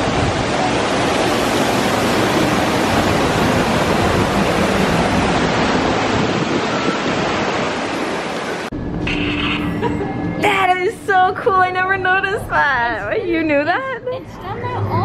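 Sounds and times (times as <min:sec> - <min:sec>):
waterfall rushing: 0:00.0 - 0:08.7.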